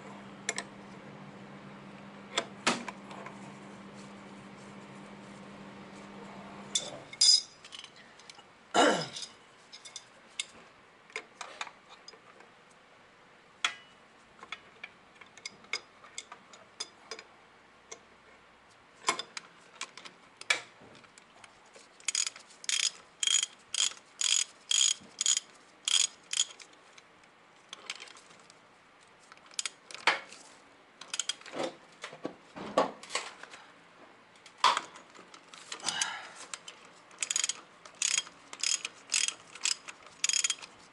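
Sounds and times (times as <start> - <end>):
tools clanking against metal: 6.8 - 8.0, 9.0 - 10.1, 37.2 - 40.7
ratchet wrench clicking: 22.1 - 26.6, 37.2 - 40.7.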